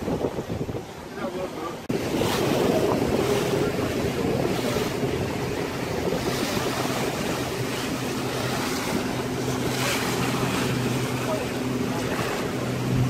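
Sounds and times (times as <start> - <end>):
boat engine humming: 0.0 - 13.0
sea water splashing: 0.0 - 13.0
wind buffeting microphone: 0.0 - 13.0.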